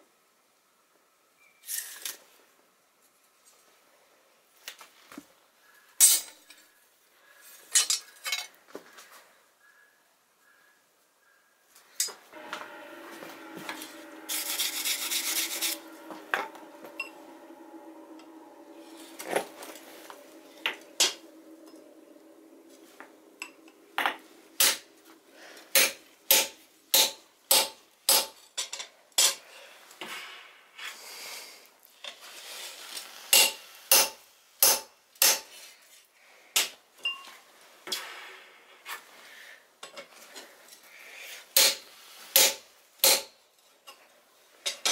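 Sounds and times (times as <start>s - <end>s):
steady humming tones: 12.0s - 27.5s
loud hiss: 12.2s - 27.7s
hammer striking metal punch: 25.7s - 28.3s.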